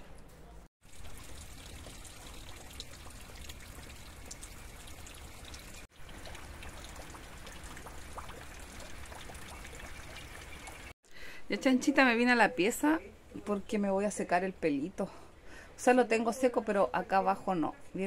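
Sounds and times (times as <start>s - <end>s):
faint drips: 0.9s - 10.9s.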